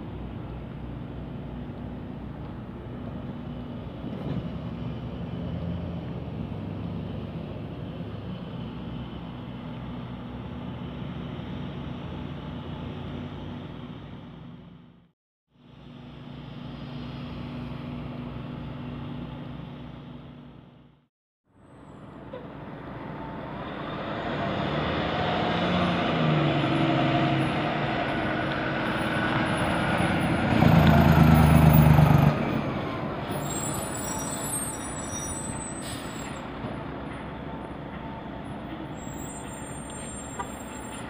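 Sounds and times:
diesel truck engine passing: 0:22.6 - 0:39.3.

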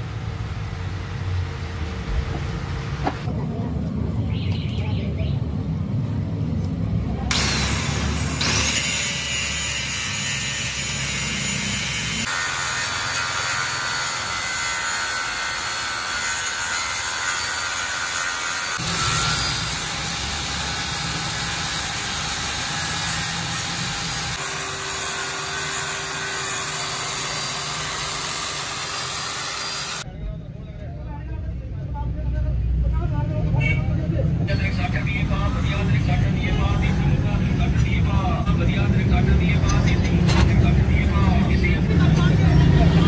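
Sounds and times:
angle grinder grinding metal: 0:07.3 - 0:30.0.

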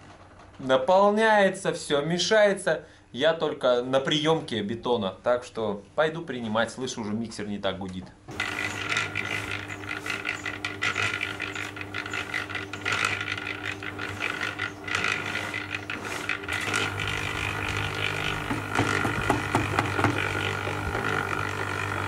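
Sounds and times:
concrete mixer motor hum: 0:08.3 - 0:22.0
concrete tumbling in drum: 0:08.3 - 0:22.0.

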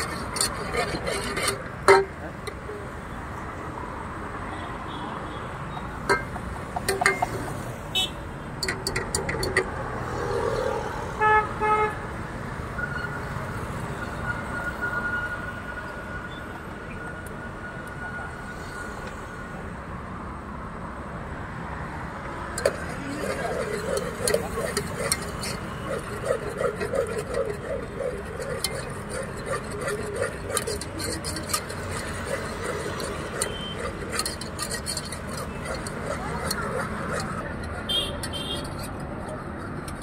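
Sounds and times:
whisk beating mixture in pot: 0:00.0 - 0:02.0, 0:22.6 - 0:38.8
street traffic noise: 0:00.0 - 0:40.0
vehicle horn toots: 0:07.9 - 0:08.2, 0:37.8 - 0:38.8.

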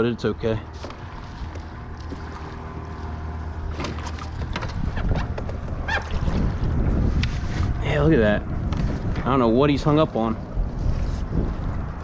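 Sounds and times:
water against kayak hull: 0:00.6 - 0:07.8, 0:10.3 - 0:12.0
fishing gear clicks and knocks: 0:00.7 - 0:06.4
wind buffeting microphone: 0:01.0 - 0:12.0.

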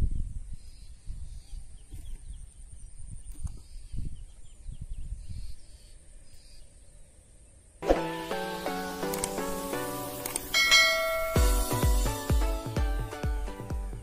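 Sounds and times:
high insect drone: 0:08.1 - 0:12.6
short insect chirps: 0:08.3 - 0:11.4.

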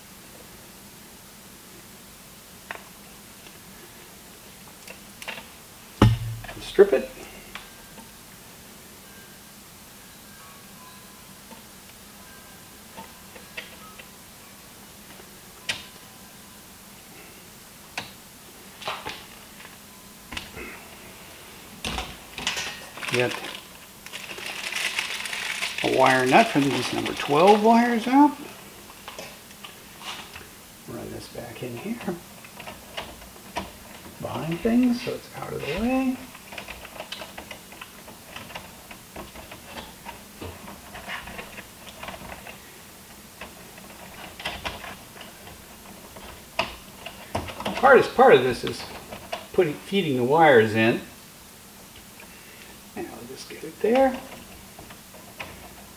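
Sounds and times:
dull knock: 0:06.0 - 0:06.6.

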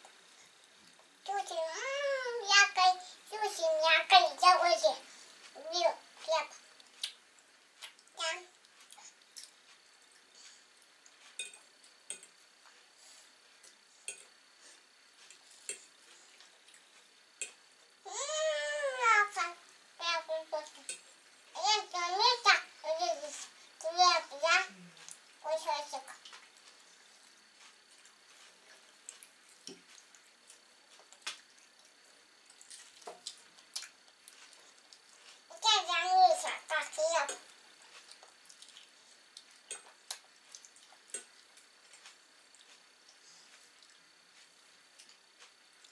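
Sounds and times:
child calling out: 0:01.5 - 0:02.6, 0:18.1 - 0:20.2.

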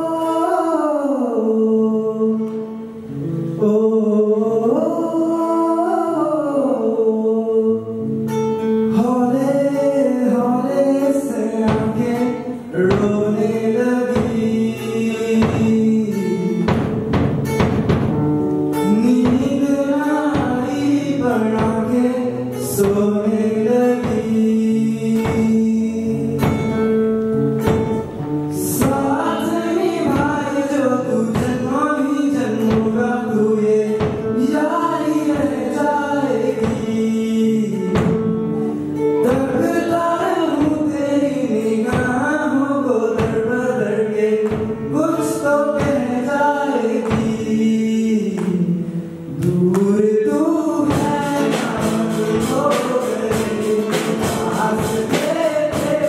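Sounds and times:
boys singing into microphones: 0:00.0 - 0:18.0, 0:18.7 - 0:27.0, 0:27.6 - 0:56.0
acoustic guitar: 0:00.0 - 0:56.0
drum beat: 0:12.9 - 0:13.4, 0:14.0 - 0:15.9, 0:16.6 - 0:25.7, 0:26.3 - 0:31.8, 0:36.5 - 0:41.0, 0:50.8 - 0:56.0.

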